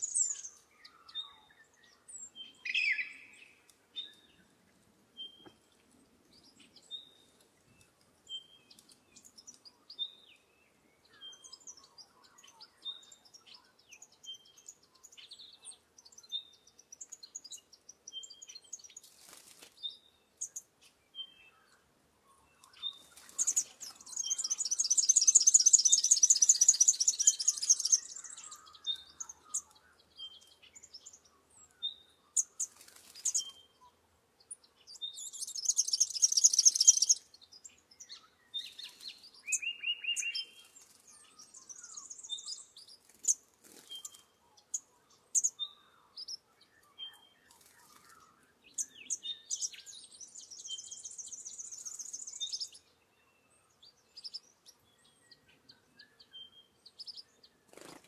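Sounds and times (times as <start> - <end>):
rapid high-pitched bird chattering: 23.4 - 28.7, 35.3 - 37.2.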